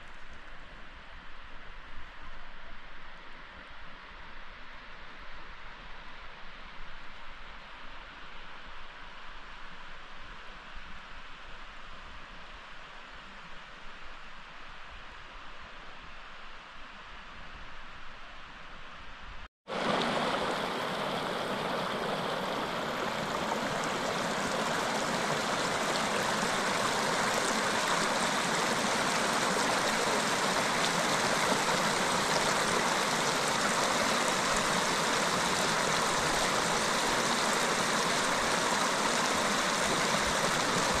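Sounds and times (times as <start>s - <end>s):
mountain stream rushing: 19.7s - 41.0s.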